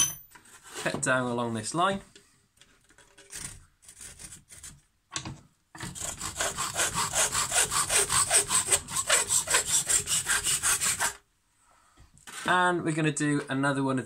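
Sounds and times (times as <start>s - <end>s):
handsaw cutting wood: 5.8s - 11.2s.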